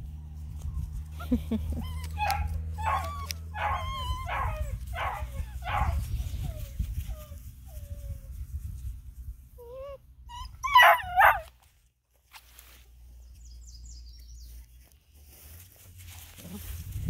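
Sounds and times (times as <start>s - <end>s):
puppy whining and yelping: 1.1s - 8.3s, 9.6s - 11.5s.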